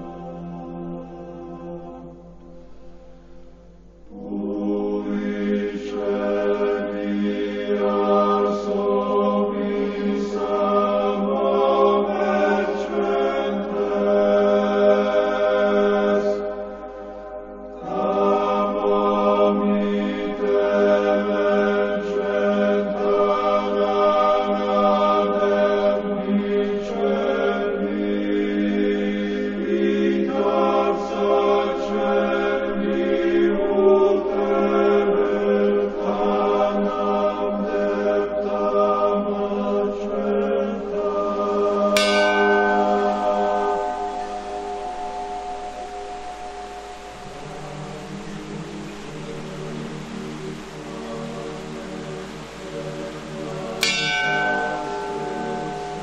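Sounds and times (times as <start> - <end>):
choir chanting: 0.0 - 56.0.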